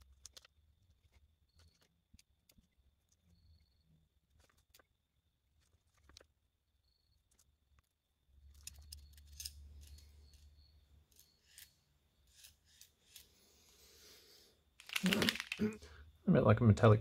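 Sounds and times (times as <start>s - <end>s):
hand tool clicking and scraping: 8.5s - 13.4s.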